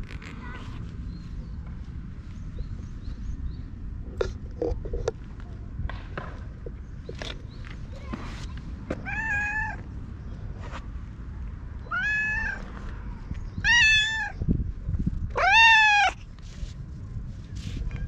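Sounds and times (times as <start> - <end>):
cat meowing: 9.0 - 9.8, 11.8 - 12.6, 13.6 - 14.4, 15.4 - 16.2.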